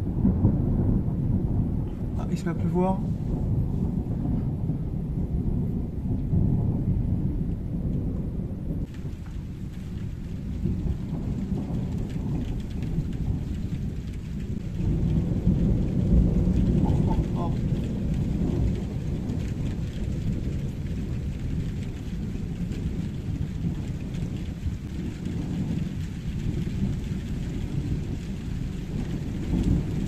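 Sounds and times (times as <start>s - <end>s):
rolling thunder: 0.0s - 30.0s
rain hissing: 8.8s - 30.0s.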